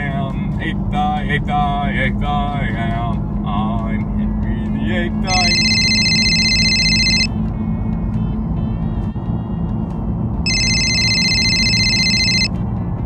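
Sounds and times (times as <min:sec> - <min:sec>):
road and engine rumble: 0:00.0 - 0:13.0
phone ringtone: 0:05.3 - 0:07.4, 0:10.4 - 0:12.6.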